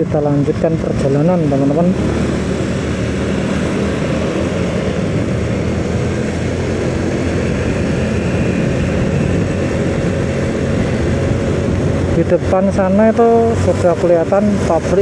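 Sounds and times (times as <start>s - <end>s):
road noise: 0.0s - 15.0s
vehicle engine running: 0.0s - 15.0s
wind noise: 0.0s - 15.0s.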